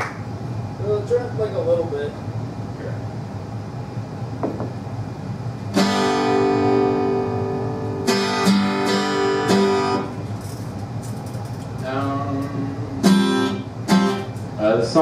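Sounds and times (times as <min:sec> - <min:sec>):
acoustic guitar strumming: 0:05.7 - 0:14.6.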